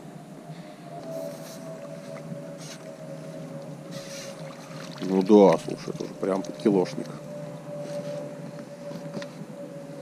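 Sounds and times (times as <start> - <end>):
faint steady hum: 0.0 - 10.0
water splashing and dripping: 4.3 - 6.6.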